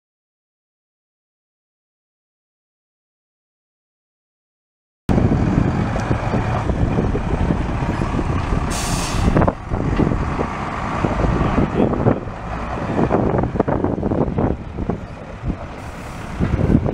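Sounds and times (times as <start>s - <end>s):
diesel truck engine rumbling: 5.1s - 16.9s
air hiss: 8.7s - 9.4s.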